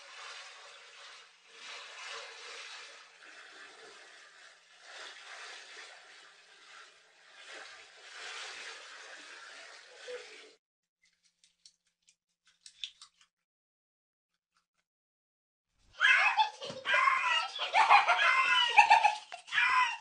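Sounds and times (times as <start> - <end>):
shower water spraying: 0.0 - 10.6.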